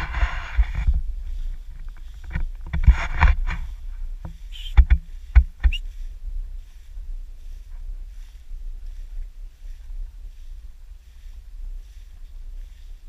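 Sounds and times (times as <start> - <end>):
grass swishing against camera: 0.0 - 13.0
wind rumble on microphone: 0.0 - 13.0.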